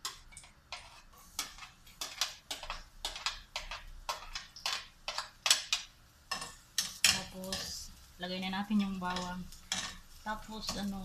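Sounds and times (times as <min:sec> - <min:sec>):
plastic spatula scraping a pan: 0:00.0 - 0:05.3.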